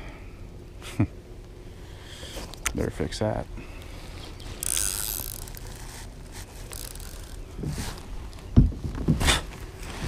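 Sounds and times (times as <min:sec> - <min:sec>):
fishing tackle handling noises: 0:03.8 - 0:09.9.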